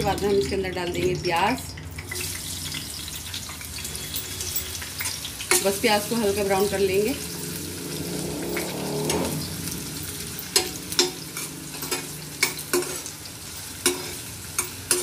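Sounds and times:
onions sizzling in hot oil: 0:00.0 - 0:15.0
metal spatula clinking on pan: 0:03.1 - 0:05.8, 0:10.4 - 0:15.0.

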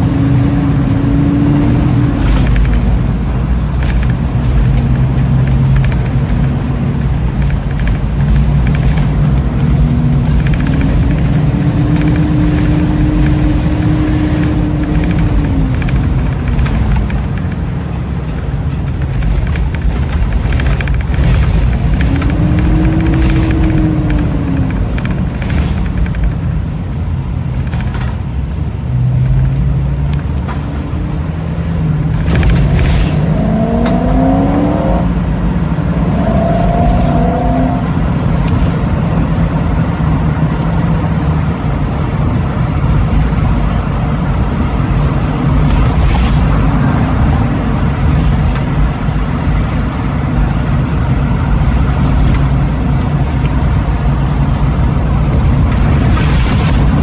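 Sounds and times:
car engine revving: 0:00.0 - 0:27.6, 0:29.2 - 0:43.4
low drone of engine and tyres: 0:00.0 - 0:57.0.

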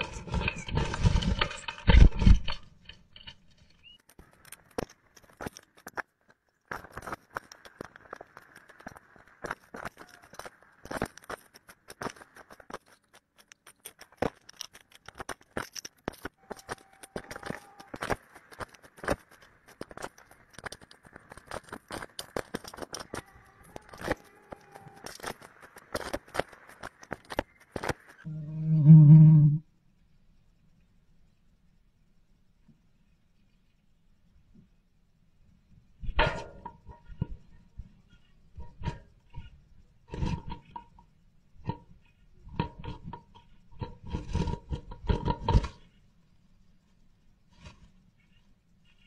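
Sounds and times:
bird rustling nest material: 0:00.0 - 0:28.3
claws scratching on wood: 0:06.8 - 0:28.3.

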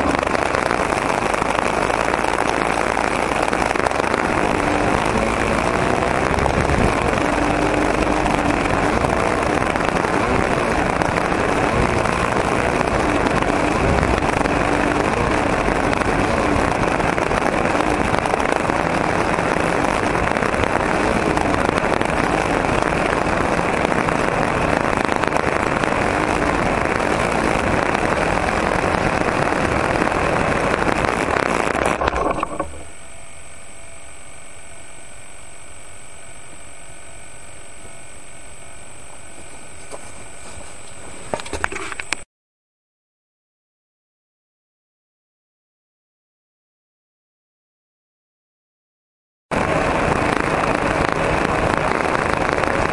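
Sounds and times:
model airplane engine running: 0:00.0 - 0:42.1, 0:49.6 - 0:52.9
faint steady hum: 0:00.0 - 0:42.2.

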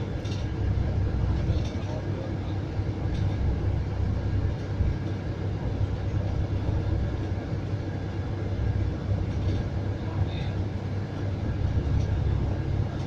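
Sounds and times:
bus engine and road rumble: 0:00.0 - 0:13.0.

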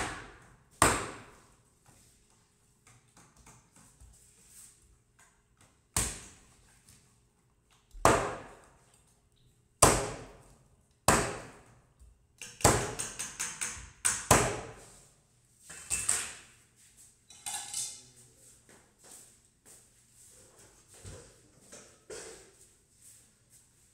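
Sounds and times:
cleaver chopping on wooden board: 0:00.0 - 0:01.3, 0:08.0 - 0:08.6, 0:09.8 - 0:10.4, 0:11.1 - 0:11.6, 0:12.4 - 0:14.8.

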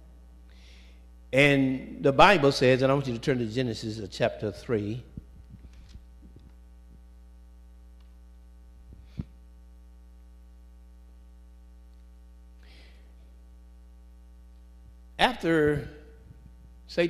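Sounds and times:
electrical mains hum: 0:00.0 - 0:17.0.

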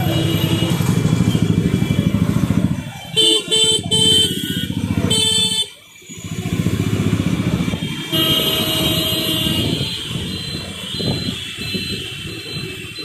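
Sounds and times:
scooter engine and road noise: 0:00.0 - 0:13.0
vehicle horn: 0:03.2 - 0:05.8, 0:07.8 - 0:10.3.

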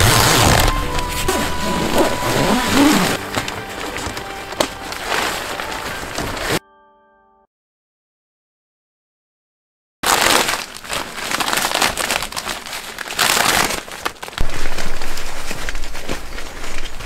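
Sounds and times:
plastic sheet crinkling and rustling: 0:00.0 - 0:06.6, 0:10.0 - 0:17.0.

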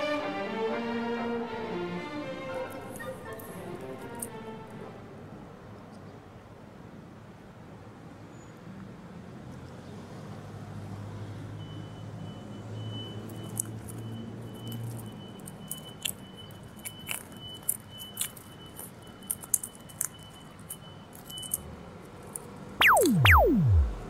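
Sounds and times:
low hum: 0:22.8 - 0:24.0.

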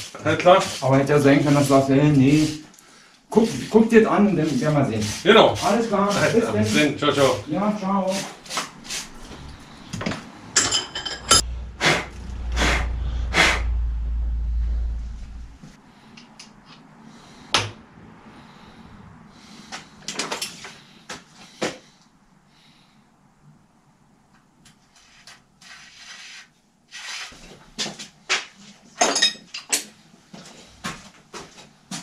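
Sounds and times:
deep rumble: 0:11.2 - 0:16.1.

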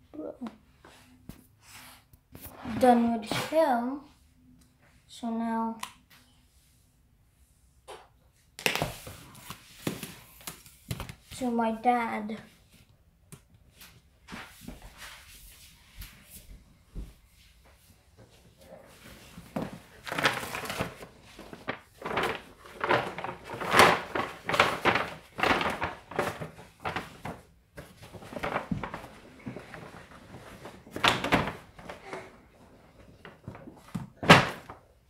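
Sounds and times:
wrapping paper crinkling: 0:19.0 - 0:32.3.

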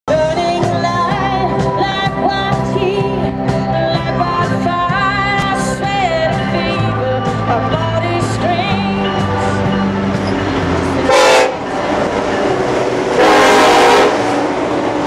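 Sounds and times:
person singing: 0:00.1 - 0:10.2
live band playing: 0:00.1 - 0:15.0.

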